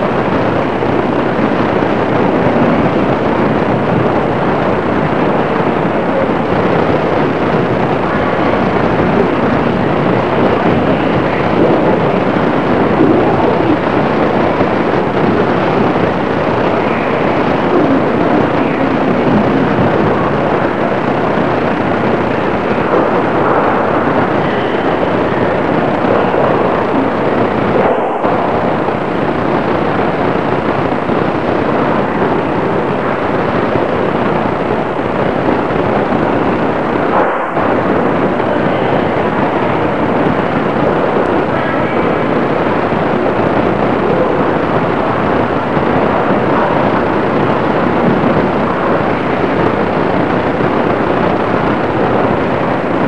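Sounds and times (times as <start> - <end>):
steady rushing noise: 0.0 - 53.0.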